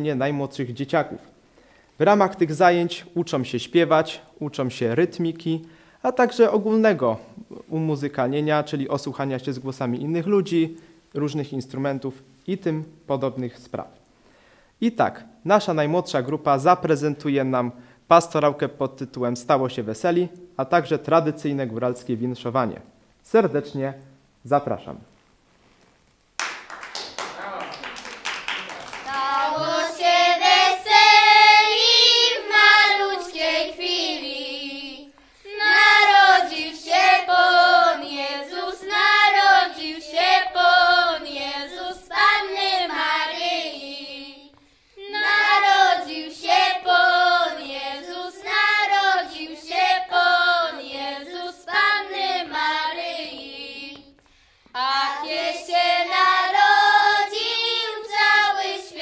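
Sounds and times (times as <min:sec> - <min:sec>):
children singing a carol: 0:28.9 - 0:54.2, 0:54.8 - 0:59.0.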